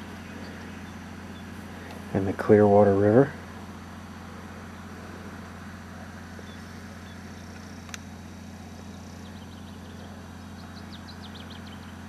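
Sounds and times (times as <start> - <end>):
low hum with hiss: 0.0 - 12.0
sharp click: 7.6 - 8.1.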